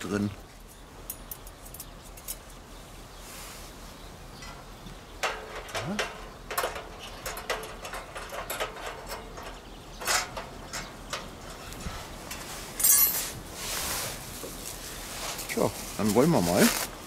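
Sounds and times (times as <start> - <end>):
metal grill grate rattling: 4.4 - 13.5.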